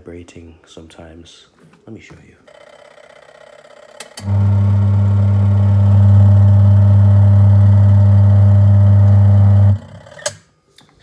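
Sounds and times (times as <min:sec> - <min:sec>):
washing machine motor humming: 0:03.8 - 0:10.2.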